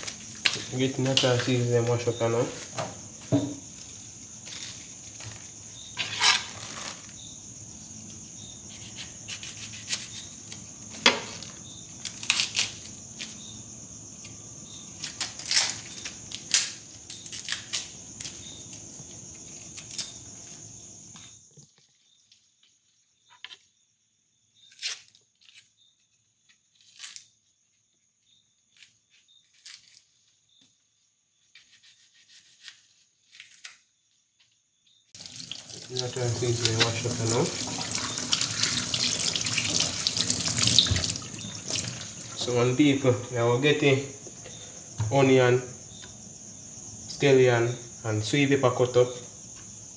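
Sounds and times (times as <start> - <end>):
crackling and tearing of stalks: 11.4 - 13.0, 15.0 - 18.4, 19.6 - 20.2, 24.6 - 25.7, 26.7 - 27.3, 28.8 - 30.2, 31.6 - 33.8
tap running into steel sink: 35.9 - 42.0.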